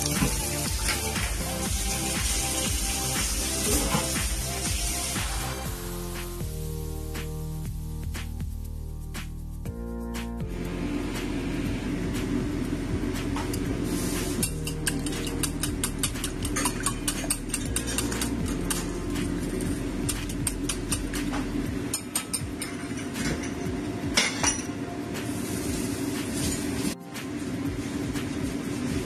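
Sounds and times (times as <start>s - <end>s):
whisk clinking against glass bowl: 14.4s - 18.8s.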